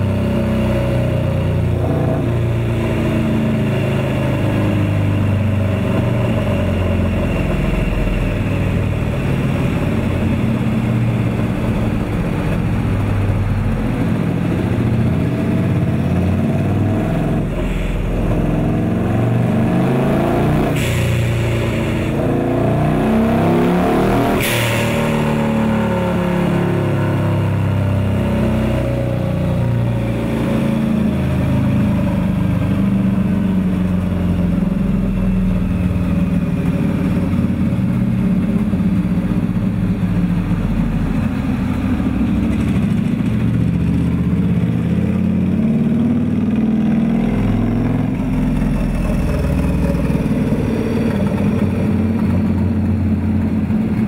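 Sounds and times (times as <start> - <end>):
motorcycle engine revving on dyno: 0.0 - 7.6, 14.6 - 32.8.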